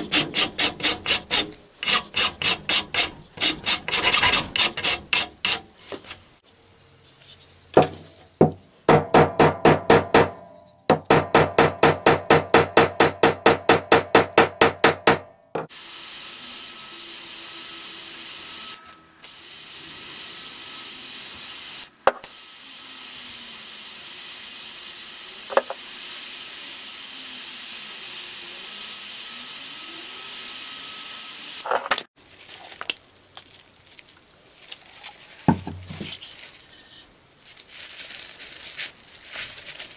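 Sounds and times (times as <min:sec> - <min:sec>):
hand file rasping on steel: 0:00.0 - 0:05.7
rotary tool sanding wood: 0:00.0 - 0:06.0.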